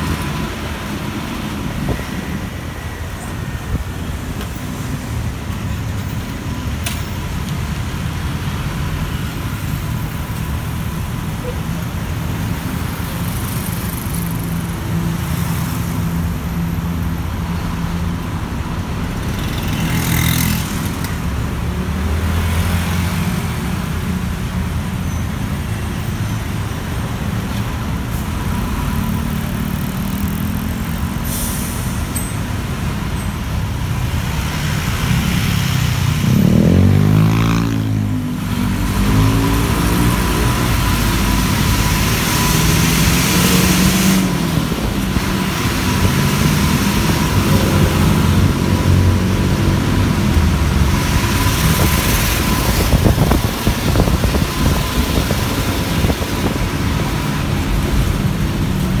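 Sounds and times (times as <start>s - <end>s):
traffic noise: 0.0s - 59.0s
bus engine running: 39.6s - 59.0s.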